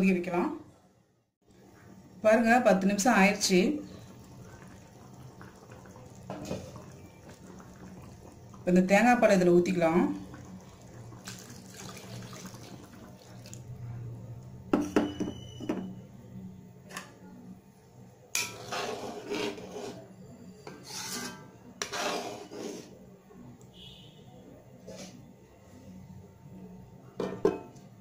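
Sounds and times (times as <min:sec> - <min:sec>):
spoon scraping metal pan: 0:18.4 - 0:22.9.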